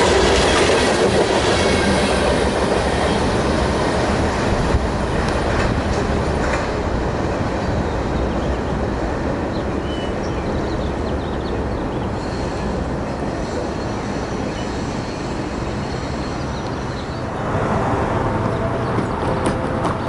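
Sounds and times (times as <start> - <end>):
train rumbling: 0.0 - 20.0
birds chirping: 7.4 - 17.5.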